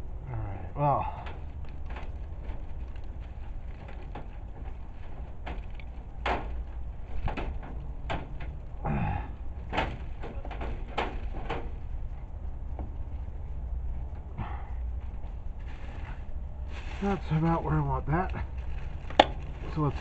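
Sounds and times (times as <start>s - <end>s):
wire mesh clicks: 1.2s - 8.8s, 9.4s - 12.8s
rustling and scraping on dry leaves: 1.4s - 7.6s, 14.9s - 20.0s.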